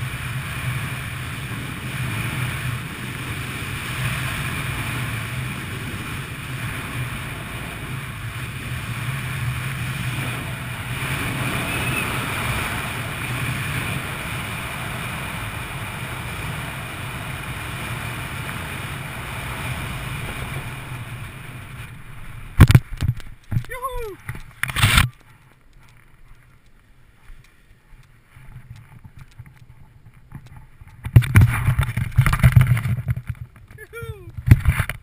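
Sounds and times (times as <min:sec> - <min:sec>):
wind rushing over microphone: 0:00.0 - 0:25.2.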